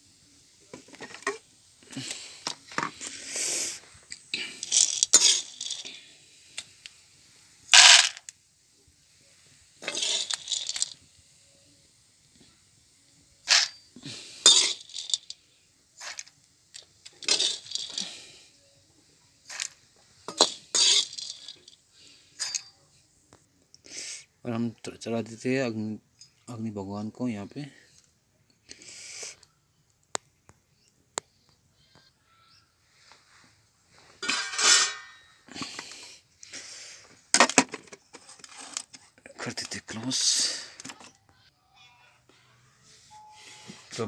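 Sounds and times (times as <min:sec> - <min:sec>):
popcorn rattling into metal pot: 0:04.4 - 0:06.0, 0:07.7 - 0:08.3, 0:09.8 - 0:11.0, 0:13.4 - 0:13.8, 0:14.4 - 0:15.4, 0:16.0 - 0:18.3, 0:19.5 - 0:21.8, 0:34.2 - 0:35.2
metal ladle scraping wok: 0:04.6 - 0:05.8, 0:14.4 - 0:15.1, 0:17.2 - 0:18.0, 0:20.3 - 0:21.7, 0:34.2 - 0:35.3.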